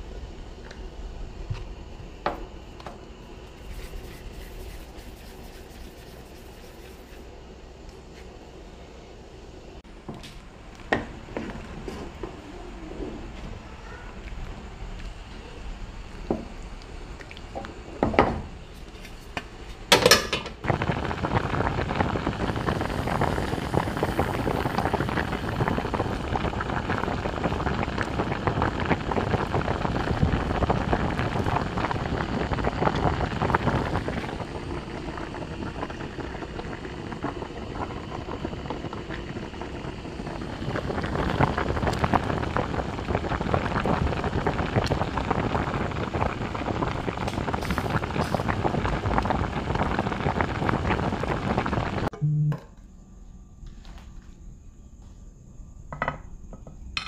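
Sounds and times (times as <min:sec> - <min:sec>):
food sizzling in a pan: 0:20.0 - 0:52.1.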